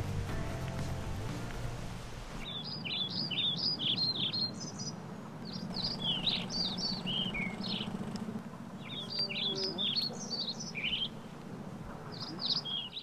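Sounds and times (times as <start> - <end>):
steady low hum: 0.0 - 2.5
songbirds chirping: 0.0 - 13.0.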